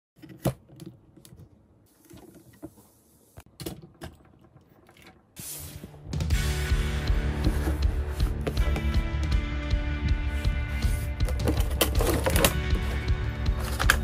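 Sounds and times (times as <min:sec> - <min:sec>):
background music: 0:05.4 - 0:14.0.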